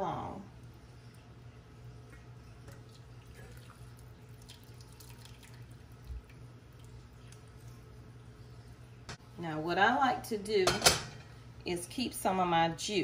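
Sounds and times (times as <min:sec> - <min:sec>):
water dripping into a glass bowl: 0:02.0 - 0:07.9.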